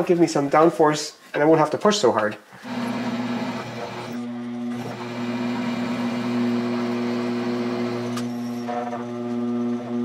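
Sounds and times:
spindle motor humming: 0:02.6 - 0:10.0.

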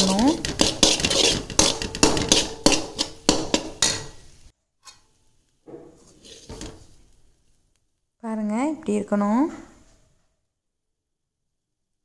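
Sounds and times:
metal spatula scraping a pan: 0:00.0 - 0:05.2, 0:05.8 - 0:07.1.

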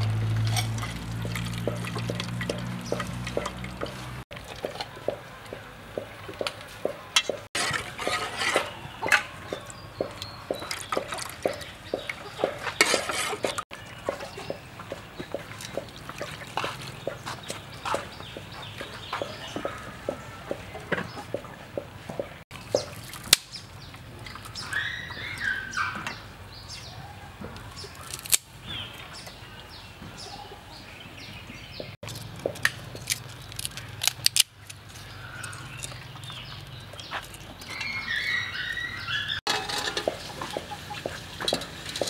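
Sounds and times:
birds chirping: 0:00.0 - 0:42.0
clicks and knocks of utensils: 0:39.5 - 0:42.0.

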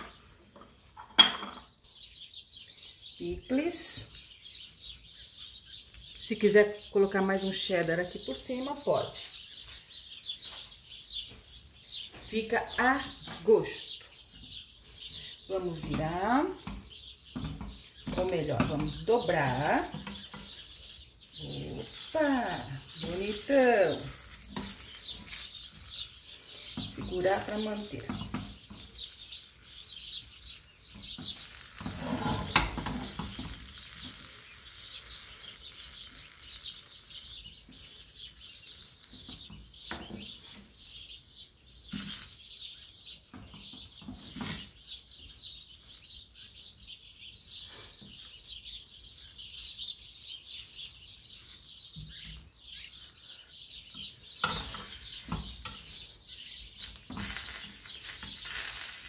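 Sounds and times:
tortilla sizzling in frying pan: 0:21.1 - 0:37.7, 0:41.9 - 0:42.4, 0:54.4 - 0:59.0
spatula scraping and knocking pan: 0:21.8 - 0:25.9, 0:30.9 - 0:34.3, 0:54.4 - 0:56.0, 0:56.8 - 0:58.9.

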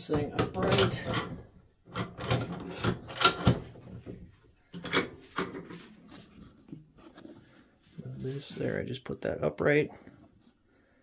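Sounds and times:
rattling: 0:00.0 - 0:05.9.

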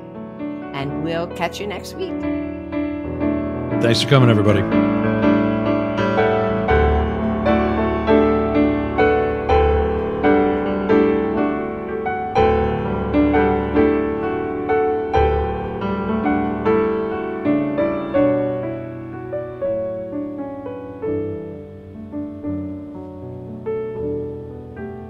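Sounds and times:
piano music: 0:00.0 - 0:25.0.

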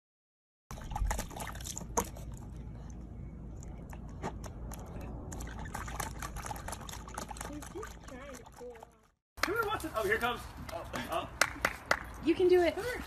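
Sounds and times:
water splashes: 0:00.7 - 0:02.6, 0:04.6 - 0:10.0
puppy lapping water: 0:00.7 - 0:09.2.

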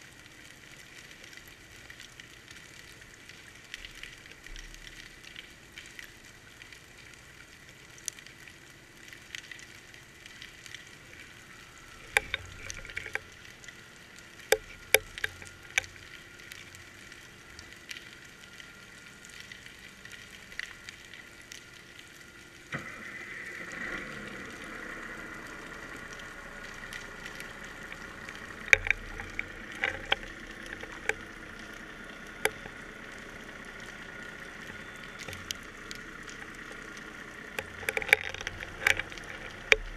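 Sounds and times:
underwater crackling hiss: 0:00.0 - 0:39.9
faint high whine: 0:02.5 - 0:39.9
sharp clicks and knocks: 0:12.0 - 0:13.3, 0:14.4 - 0:16.0, 0:26.9 - 0:32.9, 0:37.5 - 0:39.9.

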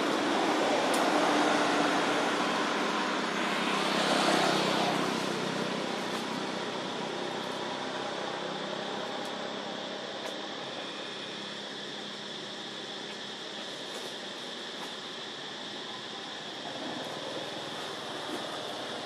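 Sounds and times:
faint hum: 0:00.0 - 0:19.0.

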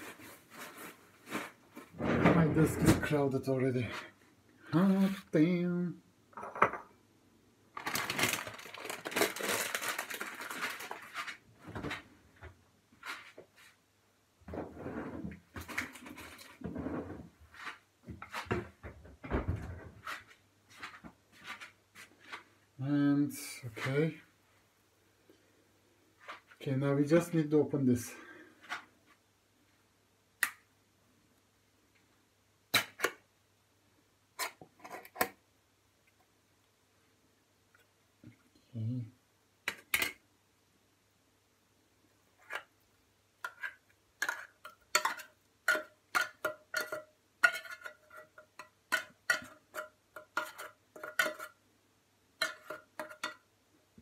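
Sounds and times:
food containers rustling: 0:00.0 - 0:03.2, 0:07.7 - 0:13.8, 0:14.5 - 0:19.0
containers knocking and clattering: 0:43.5 - 0:51.6, 0:52.4 - 0:53.5.

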